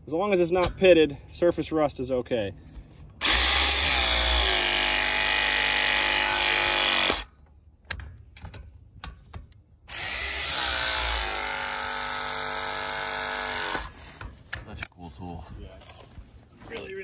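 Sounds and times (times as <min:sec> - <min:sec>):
press tool motor whining: 0:03.2 - 0:07.3, 0:09.9 - 0:14.2.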